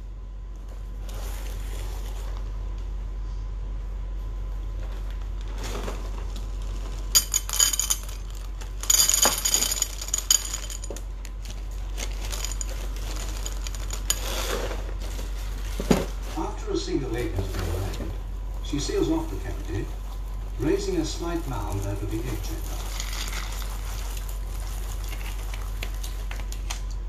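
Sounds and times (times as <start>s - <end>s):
low steady hum: 0.0s - 27.0s
dry cereal pouring from box: 5.0s - 7.0s, 11.4s - 15.7s, 18.6s - 26.6s.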